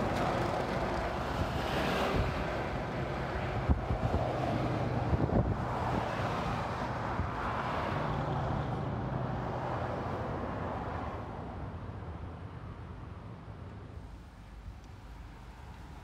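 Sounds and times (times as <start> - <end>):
car passing: 0.0 - 11.7
wind on microphone: 0.9 - 7.6.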